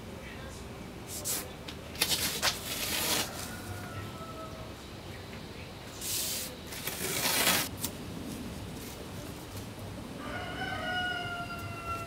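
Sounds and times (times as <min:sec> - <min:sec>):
tape ripping off roll: 0:02.0 - 0:03.6, 0:06.0 - 0:07.9.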